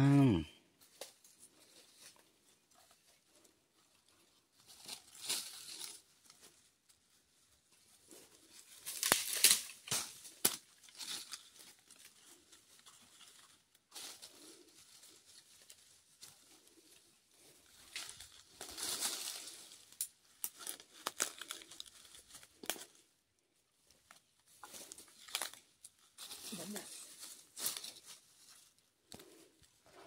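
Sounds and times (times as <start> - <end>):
dry leaves and twigs rustling: 0.8 - 30.0
twigs snapping: 8.8 - 12.1, 17.9 - 23.0, 24.8 - 25.9.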